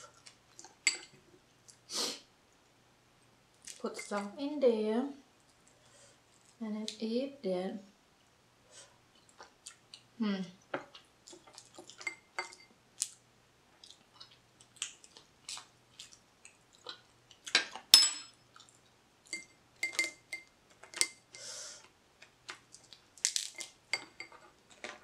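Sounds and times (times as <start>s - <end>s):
metal spoon clinking: 0.8s - 1.1s, 18.0s - 18.4s, 19.3s - 21.2s
crab shell cracking and squishing: 22.2s - 23.8s.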